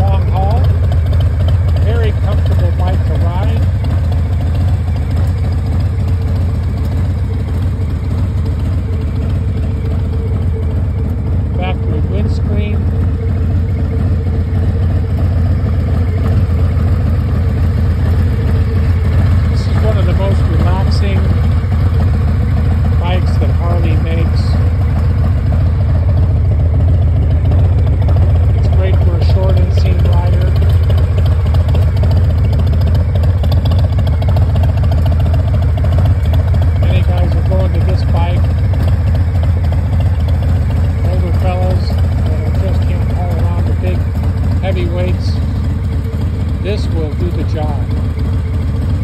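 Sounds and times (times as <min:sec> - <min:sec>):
motorcycle engine idling: 0:00.0 - 0:49.0.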